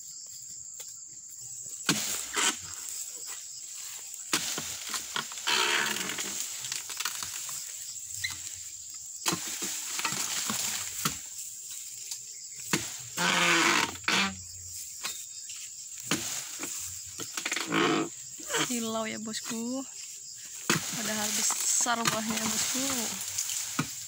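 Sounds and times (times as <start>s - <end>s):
high insect drone: 0.0s - 24.0s
rustle of palm fronds: 1.6s - 24.0s.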